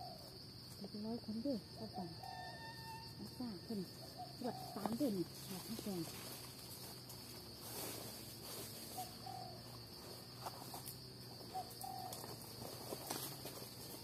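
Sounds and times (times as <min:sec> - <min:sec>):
bird calling: 0:00.0 - 0:00.3, 0:02.2 - 0:06.2, 0:08.8 - 0:09.8, 0:11.4 - 0:12.6
crickets droning: 0:00.0 - 0:14.0
rustling of dry leaves: 0:02.0 - 0:14.0.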